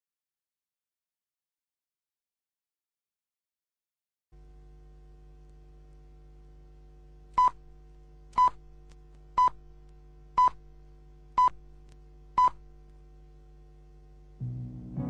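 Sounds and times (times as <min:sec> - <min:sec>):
low steady hum: 0:04.4 - 0:15.0.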